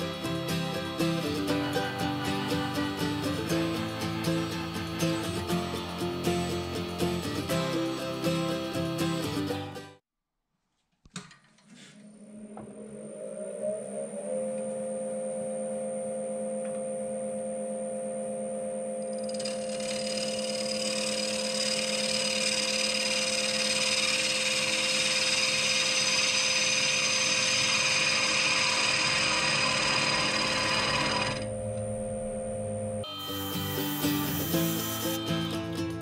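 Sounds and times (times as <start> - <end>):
wood lathe motor whine: 0.0 - 9.5, 14.1 - 35.8
music: 0.0 - 10.0, 33.0 - 36.0
turning tool cutting wood: 19.1 - 31.5, 33.1 - 35.5.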